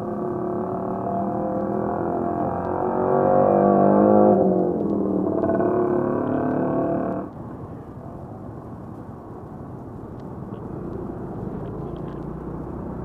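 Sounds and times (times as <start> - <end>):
road and traffic noise: 0.0 - 13.0.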